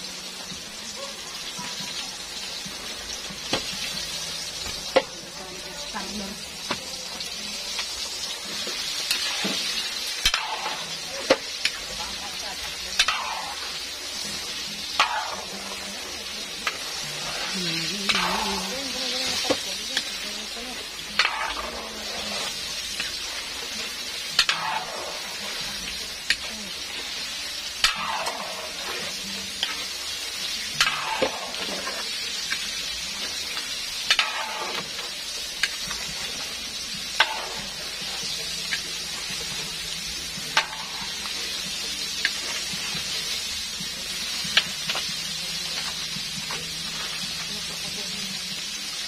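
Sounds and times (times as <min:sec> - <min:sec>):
chicken deep-frying in oil: 0:00.0 - 0:49.0
metal ladle scraping wok: 0:08.9 - 0:32.5, 0:33.4 - 0:36.4.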